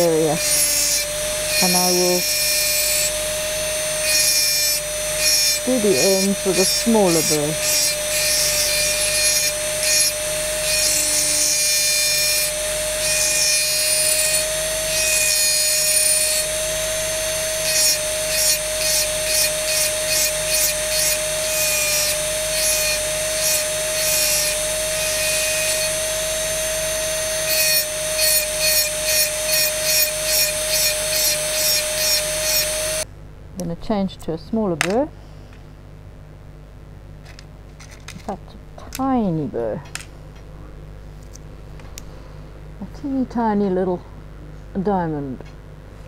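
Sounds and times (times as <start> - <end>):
rotary engraving tool whine: 0.0 - 33.1.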